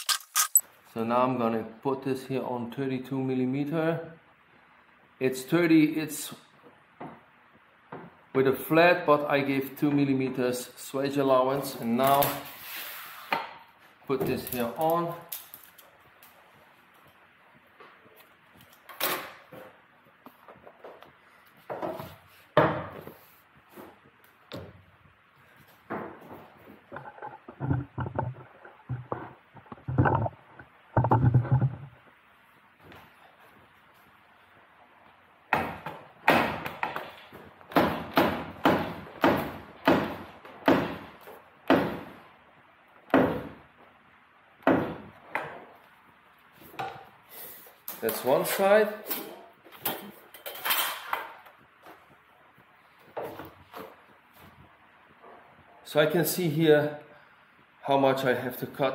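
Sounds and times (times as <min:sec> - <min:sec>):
tools and sheet metal clattering: 0:49.1 - 0:51.4.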